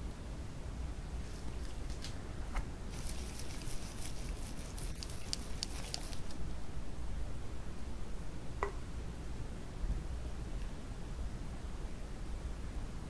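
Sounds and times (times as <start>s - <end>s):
low steady hum: 0.0s - 13.0s
utensils ticking and tapping: 3.0s - 6.4s.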